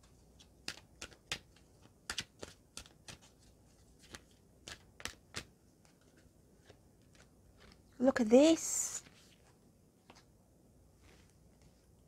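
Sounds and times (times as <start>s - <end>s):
cards being shuffled: 0.0s - 7.9s, 8.9s - 10.3s.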